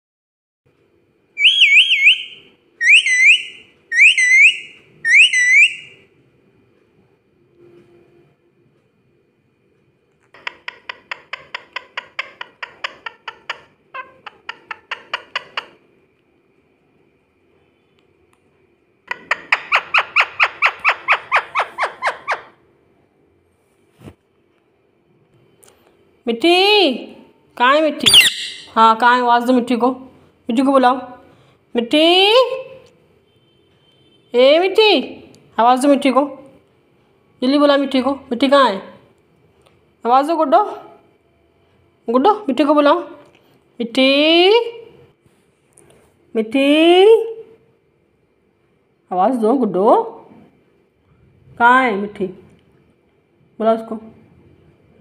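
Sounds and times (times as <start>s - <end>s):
parakeet whistling: 1.4s - 6.0s, 28.0s - 28.8s.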